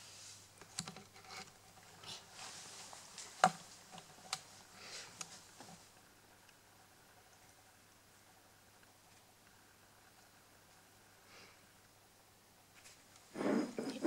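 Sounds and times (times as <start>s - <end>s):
soft rustling: 0.0s - 6.1s, 12.7s - 14.0s.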